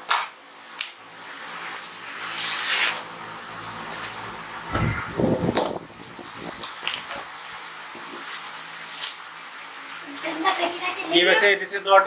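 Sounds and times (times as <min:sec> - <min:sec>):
packaging rustling and scraping: 0:08.0 - 0:10.8.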